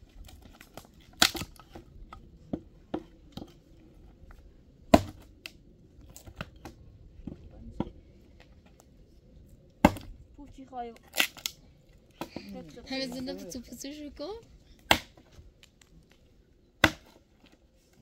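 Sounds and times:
axe chopping branches: 0:00.2 - 0:01.9, 0:04.9 - 0:06.8, 0:09.8 - 0:10.2, 0:11.0 - 0:11.6, 0:14.8 - 0:15.4, 0:16.8 - 0:17.6.

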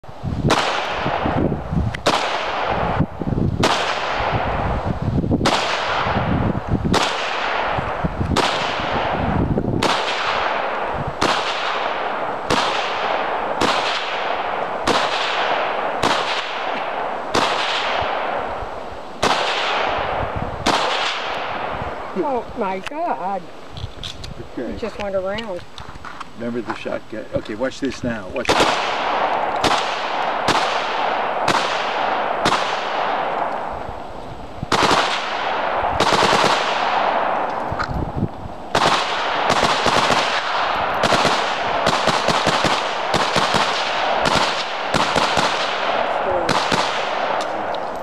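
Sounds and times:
rifle shots echoing: 0:00.5 - 0:01.4, 0:02.0 - 0:03.0, 0:03.6 - 0:04.6, 0:05.4 - 0:06.3, 0:06.9 - 0:18.6, 0:19.2 - 0:22.4, 0:28.4 - 0:33.7, 0:34.7 - 0:37.7, 0:38.7 - 0:48.0.

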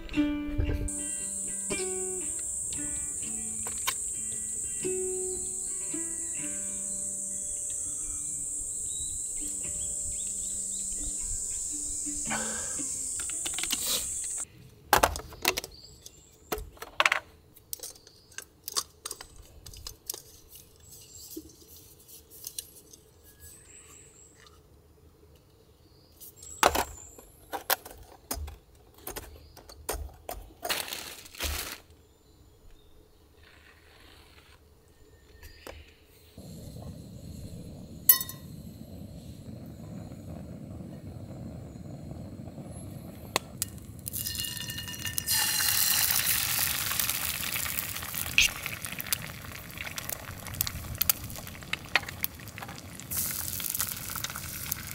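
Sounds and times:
soft guitar music: 0:00.0 - 0:14.3
crickets chirping: 0:00.9 - 0:14.5, 0:32.0 - 0:54.9
small objects clicking and clinking: 0:17.7 - 0:21.2, 0:43.6 - 0:54.9
rustling: 0:30.6 - 0:32.0, 0:33.3 - 0:34.7.

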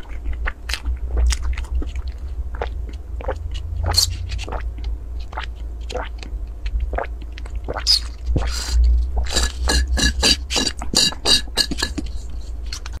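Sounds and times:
sucking drink through straw: 0:02.6 - 0:04.6, 0:07.7 - 0:12.9.

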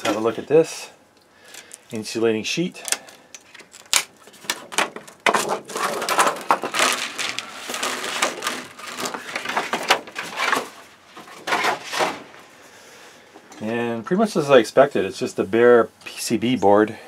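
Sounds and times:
plastic sheet crinkling and clicking: 0:02.9 - 0:12.3.

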